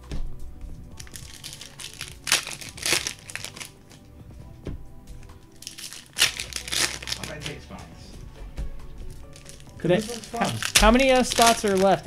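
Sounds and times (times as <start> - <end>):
plastic packaging crinkling: 1.0 - 4.0, 5.6 - 7.6, 9.2 - 12.0.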